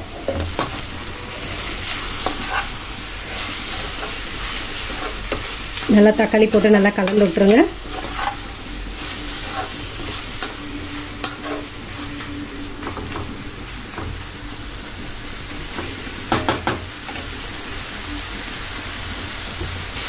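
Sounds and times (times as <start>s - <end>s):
onions and tomatoes sizzling: 0.0s - 20.0s
ladle scraping against pan: 1.4s - 5.5s, 7.8s - 10.6s, 11.2s - 11.8s.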